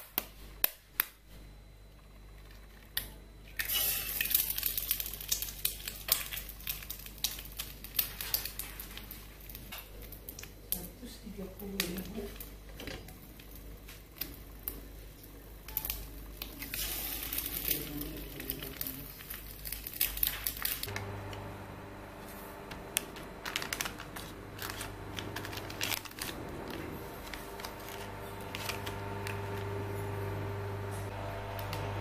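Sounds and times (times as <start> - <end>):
sachets crinkling: 4.2 - 10.5, 15.7 - 21.1, 22.9 - 29.8
steady hum: 9.1 - 32.0
food sizzling in a frying pan: 15.8 - 20.9.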